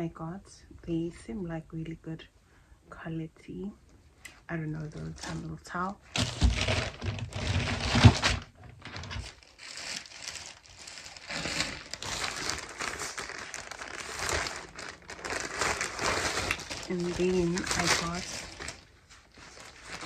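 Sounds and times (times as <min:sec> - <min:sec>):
packaging crinkling: 0:06.1 - 0:20.0.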